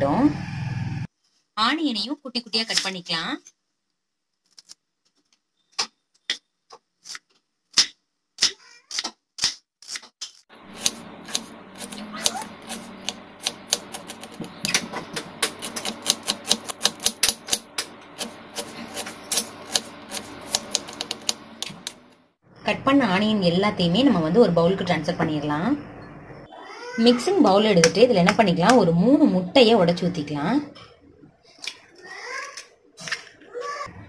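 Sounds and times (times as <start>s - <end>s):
steady background hum: 10.5s - 26.5s
knife chopping on wooden board: 10.8s - 22.0s.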